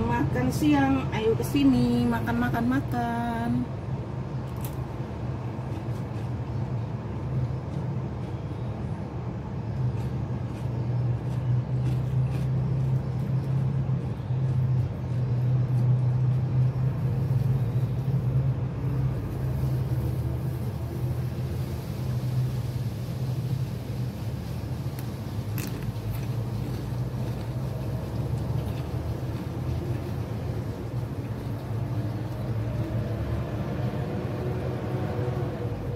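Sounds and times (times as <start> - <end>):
fried chicken crackling being torn: 4.5 - 5.0, 24.8 - 30.0.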